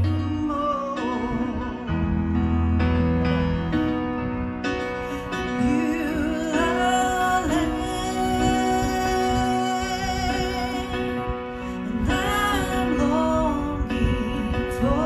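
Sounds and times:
electronic keyboard chords: 0.0s - 15.0s
woman singing worship song: 5.5s - 15.0s.

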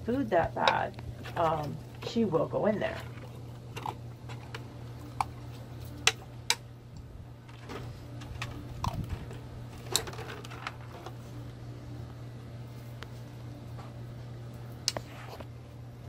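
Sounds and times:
plastic bottles clicking and crinkling: 7.5s - 11.2s.

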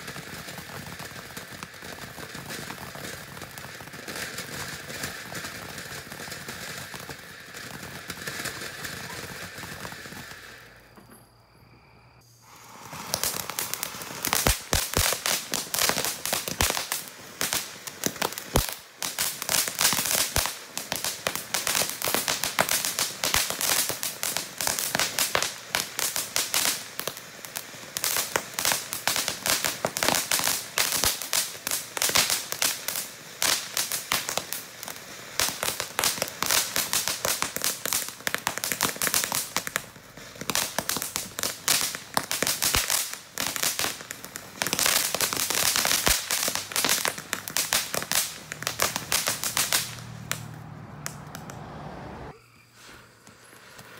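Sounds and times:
firework fountains crackling: 0.0s - 11.0s, 12.2s - 53.9s.

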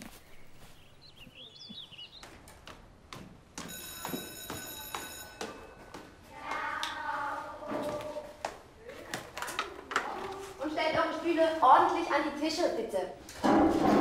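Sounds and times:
bird chirps: 0.0s - 2.4s
electric bell ringing: 3.7s - 5.8s.

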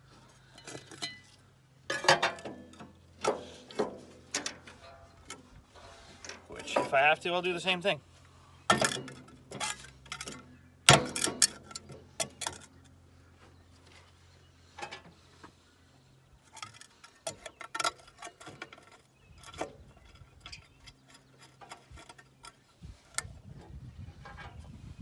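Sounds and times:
sharp metal knocks: 8.7s - 12.6s.

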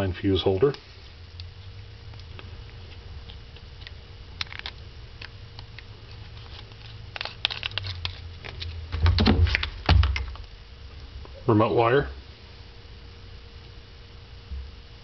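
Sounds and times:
faint steady hum: 0.0s - 15.0s
wire coils knocking and rustling: 1.3s - 11.4s.

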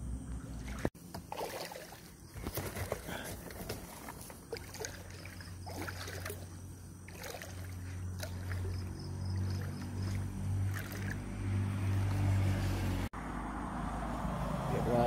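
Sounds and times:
water sloshing against hull: 0.4s - 11.2s.

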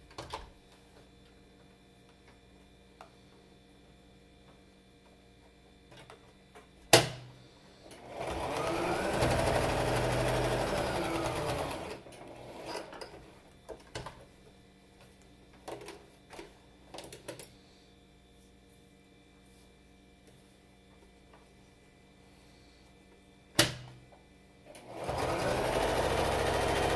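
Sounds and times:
sewing machine motor whine: 7.9s - 13.1s, 24.7s - 26.9s.

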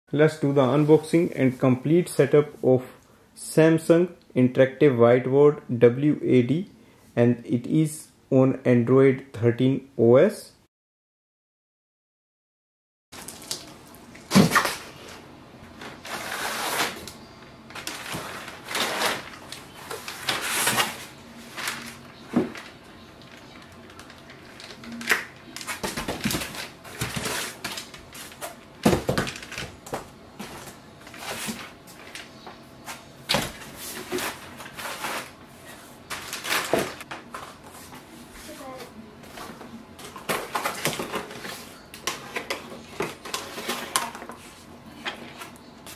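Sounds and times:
cardboard and styrofoam rustling: 13.2s - 17.1s, 17.8s - 29.8s, 30.4s - 32.1s, 32.9s - 44.7s.

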